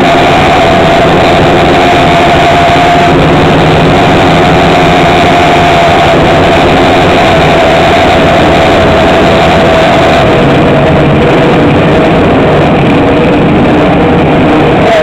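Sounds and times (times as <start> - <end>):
motorcycle engine idling: 0.0 - 14.8.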